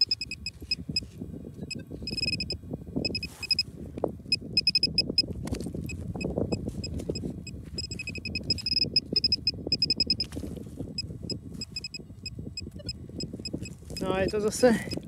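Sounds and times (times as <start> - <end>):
metal detector beeping: 0.0 - 3.7, 4.3 - 10.4, 11.0 - 15.0
fingers digging through dry soil: 3.1 - 4.0, 5.0 - 11.9, 13.3 - 15.0.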